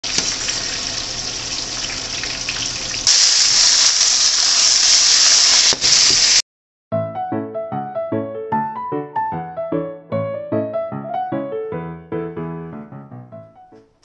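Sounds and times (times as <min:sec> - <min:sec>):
eggplant deep-frying in oil: 0:00.0 - 0:06.4
sizzle of stirring in frying pan: 0:00.1 - 0:05.8.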